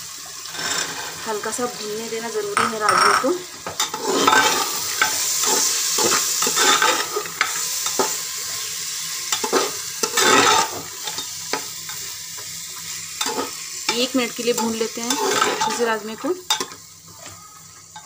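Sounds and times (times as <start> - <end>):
beans sizzling in a pot: 0.0 - 18.0
metal ladle scraping a pot: 3.8 - 8.1, 14.6 - 15.9.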